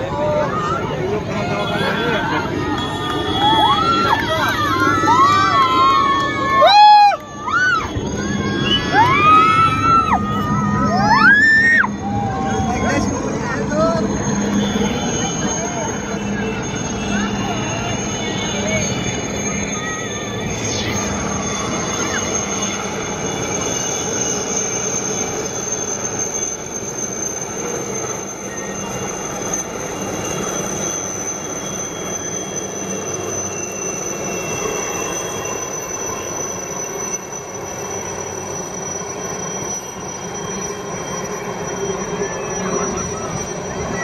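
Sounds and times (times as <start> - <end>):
helicopters flying overhead: 0.0 - 44.0
high turbine whine: 0.0 - 44.0.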